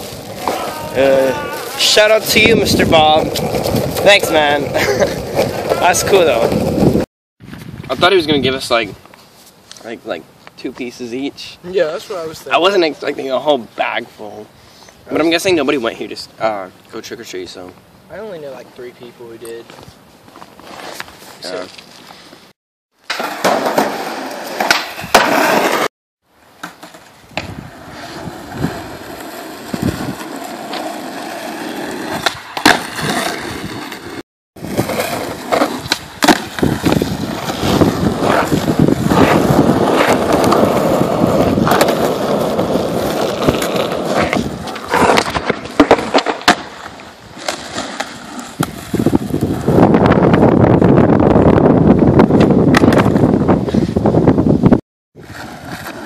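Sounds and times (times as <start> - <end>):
skateboard wheels rolling on asphalt: 0.0 - 56.0
skateboard clacking on pavement: 3.2 - 4.4, 38.1 - 49.7.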